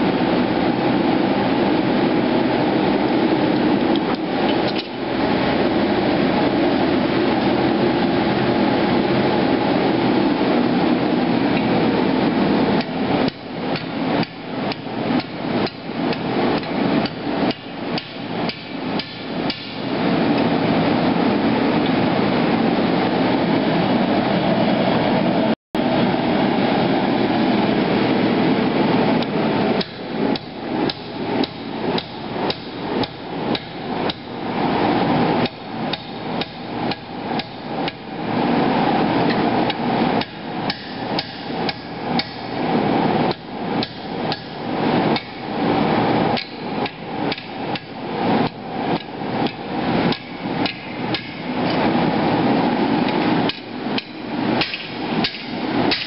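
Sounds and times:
gas forge rushing: 0:00.0 - 0:56.0
hammer on hot steel and anvil: 0:13.3 - 0:19.8, 0:29.8 - 0:34.3, 0:40.2 - 0:42.6, 0:43.3 - 0:44.6, 0:46.4 - 0:51.5, 0:53.5 - 0:56.0.

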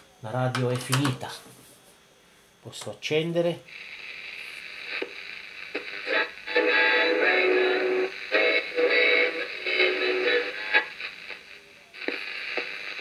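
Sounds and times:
music with singing from small radio: 0:04.0 - 0:13.0.

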